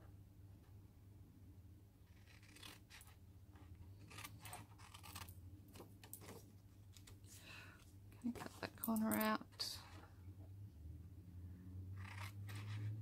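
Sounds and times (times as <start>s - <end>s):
scissors snipping paper: 2.2s - 3.2s, 4.0s - 6.4s, 12.0s - 12.9s.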